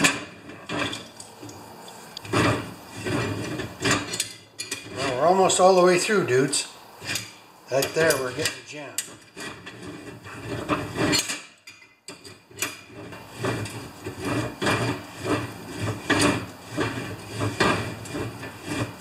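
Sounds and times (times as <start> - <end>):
drill bit scraping steel on steel: 0.0 - 11.5, 12.1 - 19.0.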